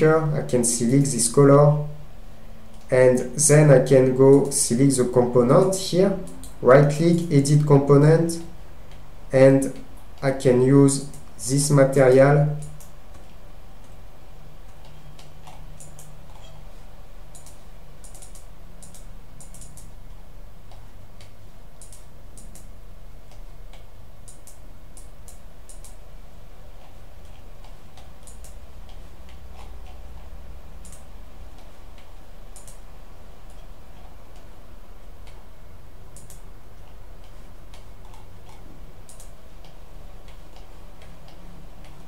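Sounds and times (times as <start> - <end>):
low steady hum: 0.0 - 42.0
computer mouse clicks: 6.2 - 6.6, 8.8 - 10.2, 11.0 - 11.4, 12.5 - 14.0, 14.6 - 16.6, 17.3 - 20.0, 20.6 - 26.0, 26.8 - 34.5, 35.2 - 35.5, 36.1 - 42.0.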